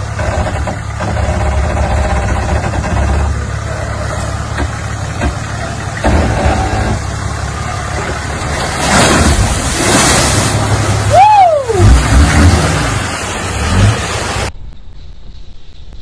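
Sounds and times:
off-road truck engine under load: 0:00.0 - 0:14.5
heavy water splashing: 0:03.5 - 0:14.6.

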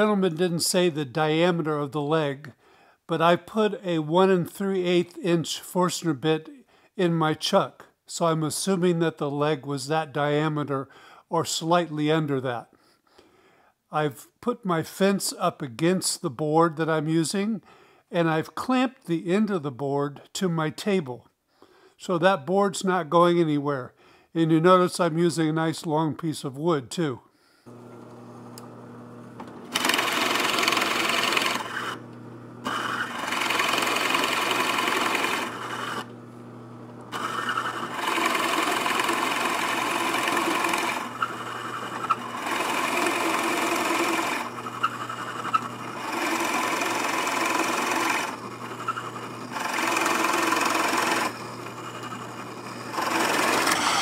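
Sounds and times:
drill bit boring into wood: 0:27.7 - 0:36.2, 0:36.8 - 0:54.0
drill press motor hum: 0:27.7 - 0:54.0.

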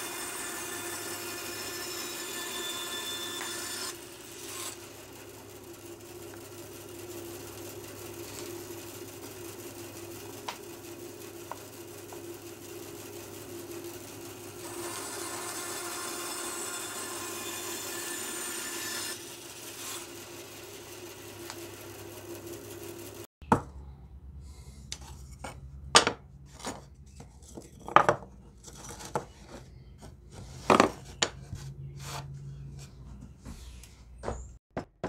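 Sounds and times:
bandsaw cutting wood: 0:00.0 - 0:23.3.

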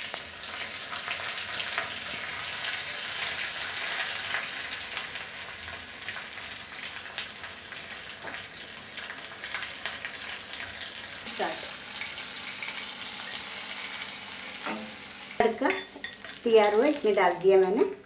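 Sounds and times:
food sizzling in hot oil: 0:00.0 - 0:18.0
ladle stirring in pan: 0:12.0 - 0:16.5.

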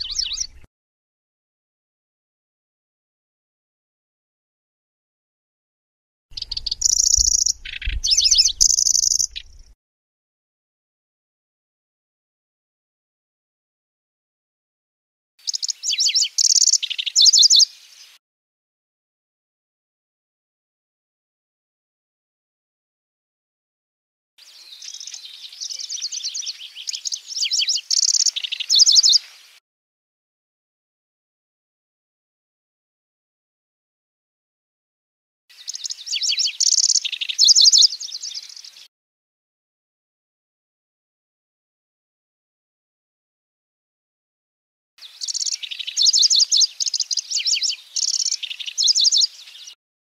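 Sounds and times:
warbler singing high chirps and trills: 0:00.0 - 0:00.7, 0:06.4 - 0:09.8, 0:15.4 - 0:18.2, 0:24.4 - 0:29.6, 0:35.5 - 0:38.9, 0:45.0 - 0:49.8.

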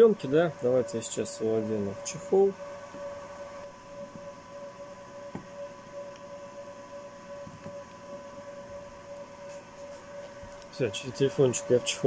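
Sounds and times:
electrical hum with whine: 0:00.0 - 0:12.0
soft rubbing of phone case: 0:09.4 - 0:10.2.

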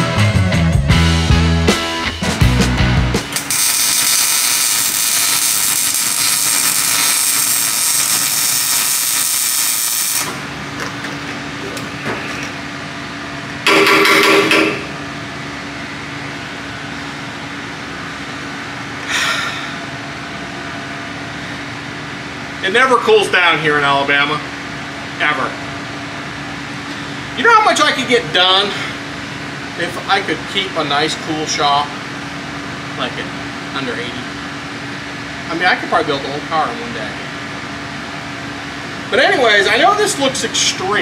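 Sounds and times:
steady machine hum: 0:01.2 - 0:41.0
loud steady hiss: 0:03.1 - 0:10.5
power tool bursts: 0:03.2 - 0:10.5.

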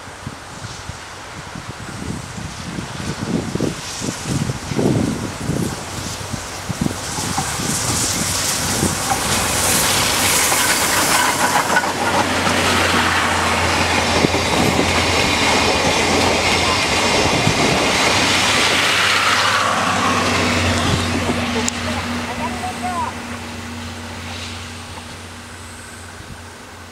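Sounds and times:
steam locomotive rush of steam: 0:00.0 - 0:26.9
train coaches rumbling past: 0:00.0 - 0:26.9
clickety-clack of wheels: 0:06.0 - 0:19.6.

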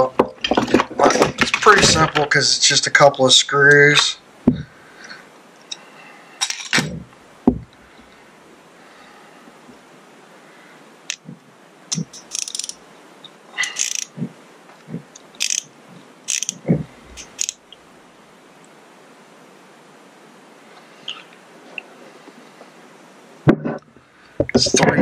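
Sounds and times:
metal tools clinking: 0:06.4 - 0:06.9
socket ratchet clicking: 0:11.9 - 0:12.8, 0:13.7 - 0:14.1, 0:15.2 - 0:15.7, 0:16.3 - 0:16.6, 0:17.2 - 0:17.6.

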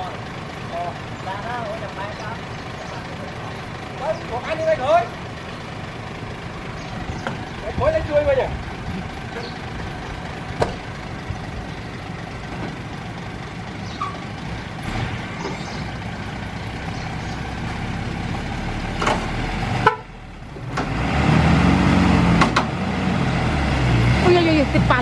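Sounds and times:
diesel truck engines running: 0:00.0 - 0:25.0
truck engine revving: 0:00.0 - 0:25.0
sharp clicks or knocks: 0:19.0 - 0:19.3, 0:22.4 - 0:22.7.

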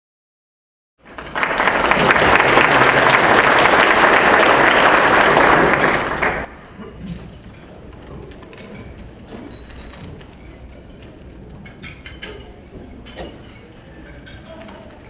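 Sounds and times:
audience applauding: 0:01.0 - 0:06.5.

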